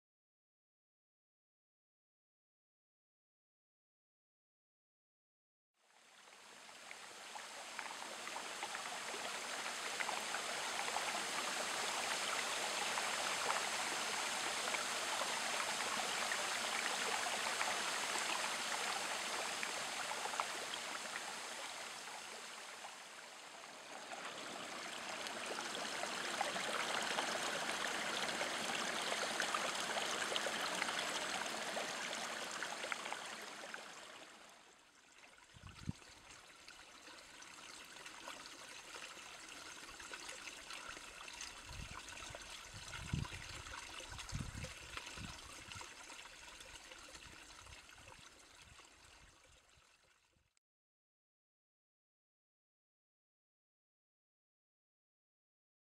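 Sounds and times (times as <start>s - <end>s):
creek water trickling: 5.9s - 50.4s.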